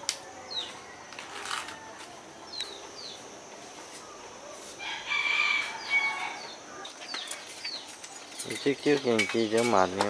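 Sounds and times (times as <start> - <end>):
rooster crowing: 4.8 - 6.7.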